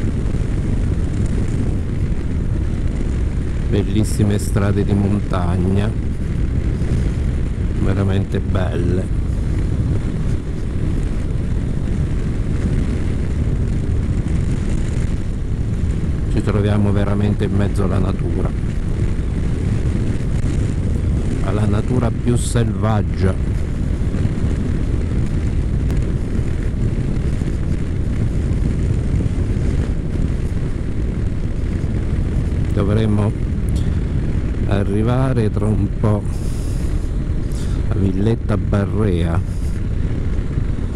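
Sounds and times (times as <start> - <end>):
motorcycle engine drone: 0.0 - 40.9
wind and road noise: 0.0 - 40.9.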